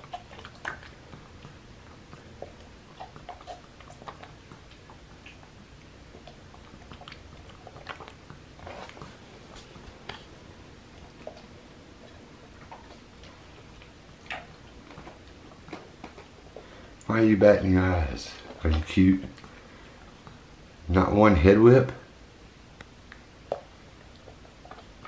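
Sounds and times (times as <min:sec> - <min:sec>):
lip smacks: 0:00.0 - 0:17.1, 0:18.3 - 0:20.5, 0:22.8 - 0:25.0
tongue clicks: 0:13.8 - 0:14.6, 0:22.8 - 0:25.0.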